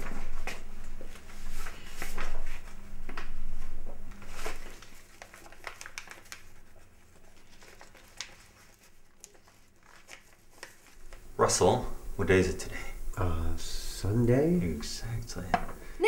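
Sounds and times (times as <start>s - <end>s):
paper rustling and crinkling: 0.0s - 11.2s.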